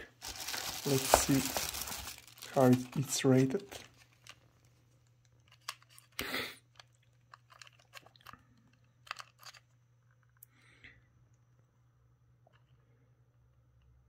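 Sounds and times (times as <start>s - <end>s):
plastic packaging rustle: 0.0s - 8.4s
small plastic clicks and crackles: 3.7s - 10.5s.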